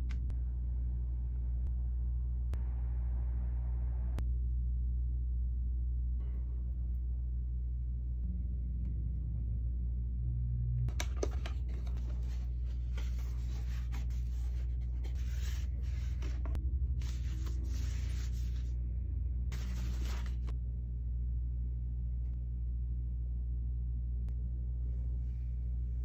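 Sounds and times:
steady low hum: 0.0 - 26.0
cardboard and paper rustling: 11.0 - 18.7, 19.5 - 20.5.

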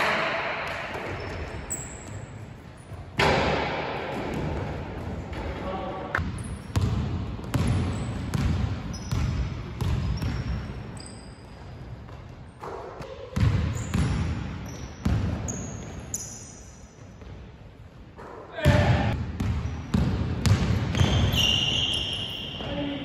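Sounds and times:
sneaker squeaks: 0.9 - 3.2, 6.2 - 6.9, 7.5 - 17.4, 19.4 - 23.0.

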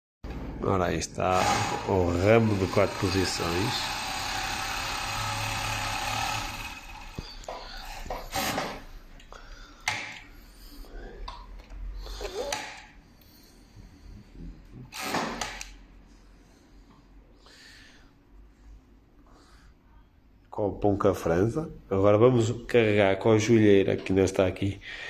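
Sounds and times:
overlock sewing machine running: 1.4 - 7.4.

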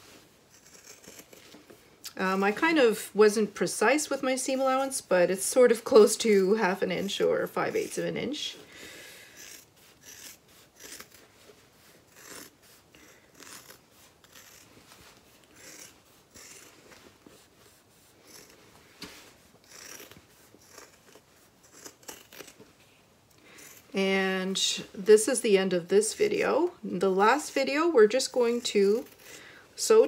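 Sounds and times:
scissors snipping fabric: 0.5 - 1.6, 12.1 - 14.7, 19.6 - 22.6, 28.4 - 29.4.

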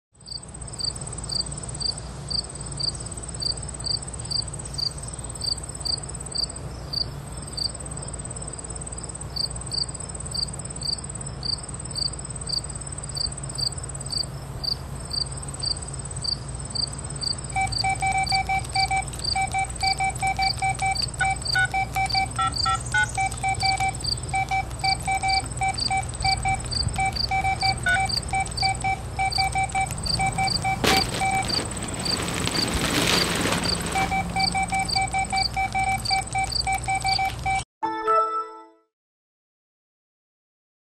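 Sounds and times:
crickets chirping: 0.2 - 37.6
lower insect call: 0.2 - 37.6
thin high insect trill: 9.3 - 37.3.

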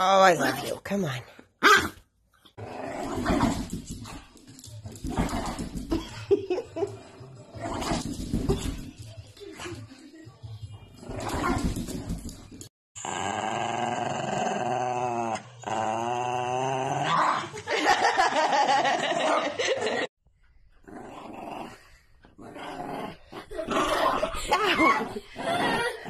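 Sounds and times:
small dogs growling: 13.0 - 17.5, 20.8 - 26.0.

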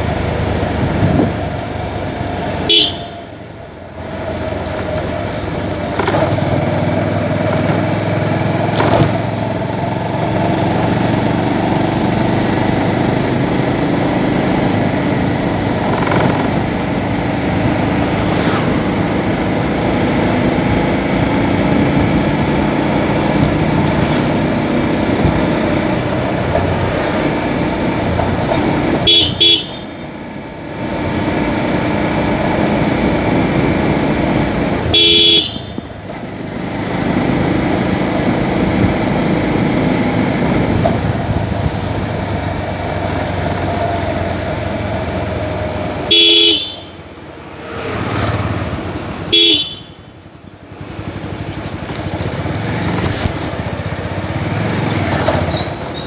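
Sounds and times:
motorcycle engine running: 0.0 - 56.0
road and wind noise: 0.0 - 56.0
horn beeps: 2.6 - 3.3, 29.0 - 30.0, 34.8 - 36.0, 46.1 - 47.0, 49.3 - 50.1.

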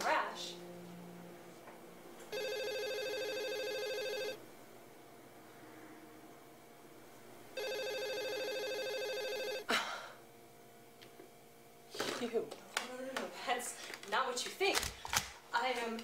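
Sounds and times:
telephone ringing: 2.3 - 4.4, 7.6 - 9.7.

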